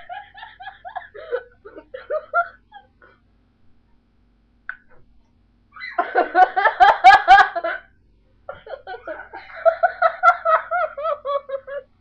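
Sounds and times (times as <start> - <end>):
woman laughing: 0.0 - 3.2, 5.8 - 7.9, 8.5 - 12.0.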